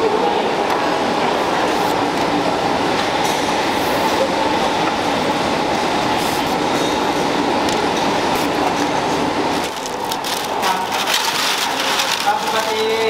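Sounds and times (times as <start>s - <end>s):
factory machinery running: 0.0s - 13.0s
crisp crackling and rustling: 9.6s - 13.0s.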